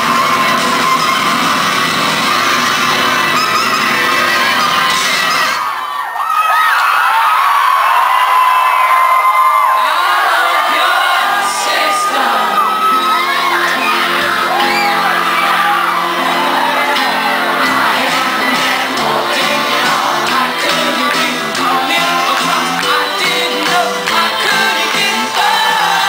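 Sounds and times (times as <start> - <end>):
crowd whooping and cheering: 0.0 - 26.0
person singing: 9.8 - 26.0
live rock band: 12.5 - 26.0.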